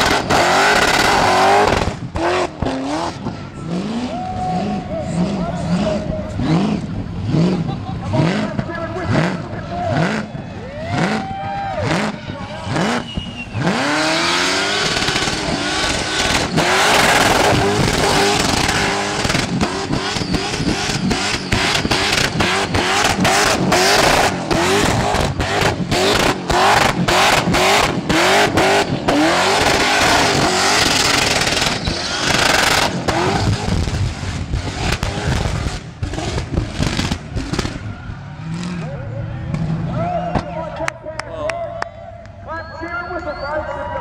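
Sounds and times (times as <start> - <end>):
car engine revving: 0.0 - 40.2
spinning tyres hissing: 12.7 - 37.8.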